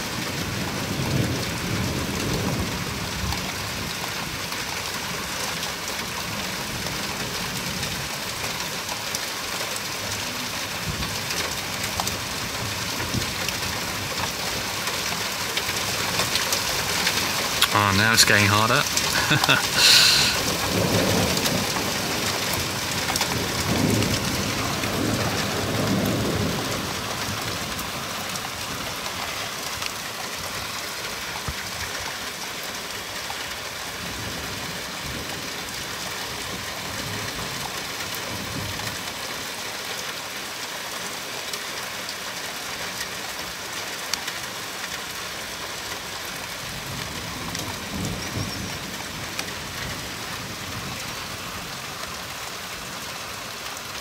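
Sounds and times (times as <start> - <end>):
rain hissing: 11.7 - 37.5
thunder rumbling: 20.4 - 27.8.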